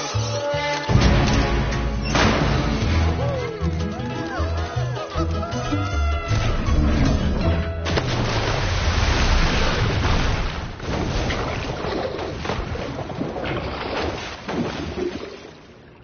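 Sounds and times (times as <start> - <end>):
water splashing: 7.8 - 16.0.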